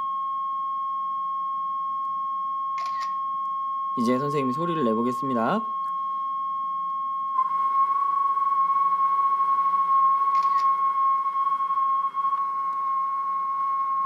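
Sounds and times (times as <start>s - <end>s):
pure sine tone: 0.0s - 14.0s
camera shutter click: 2.8s - 3.2s, 10.3s - 10.8s.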